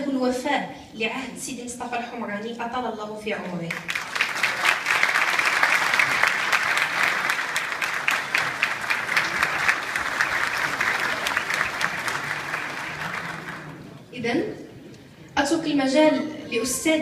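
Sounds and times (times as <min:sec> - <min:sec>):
audience applauding: 0:03.7 - 0:14.0.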